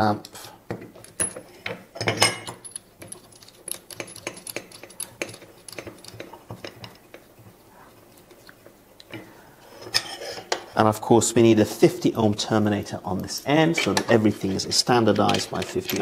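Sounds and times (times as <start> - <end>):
metallic clicks and scrapes: 2.6 - 7.5, 13.8 - 16.0.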